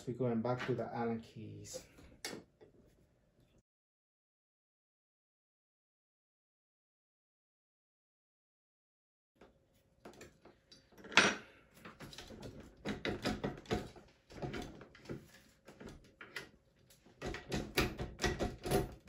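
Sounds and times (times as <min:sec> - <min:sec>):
scooter parts clicking and knocking: 0:12.0 - 0:14.9, 0:17.2 - 0:19.0.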